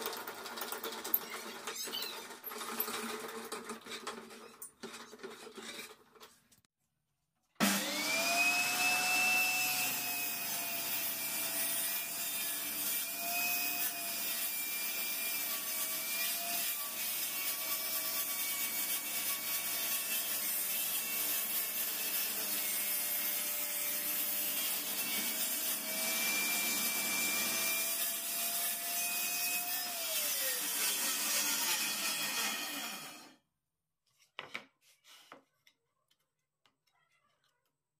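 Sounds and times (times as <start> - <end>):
table saw whining: 7.6 - 33.4.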